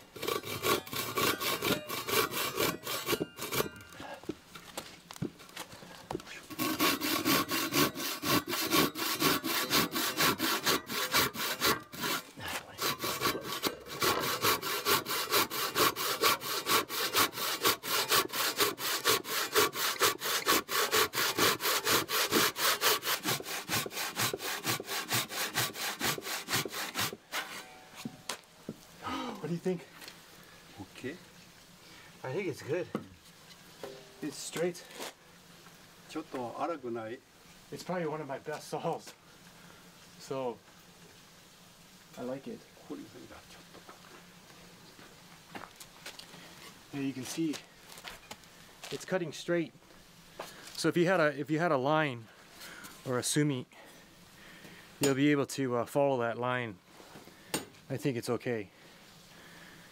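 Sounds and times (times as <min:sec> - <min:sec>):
hand saw cutting wood: 0:00.0 - 0:04.1, 0:06.5 - 0:28.1.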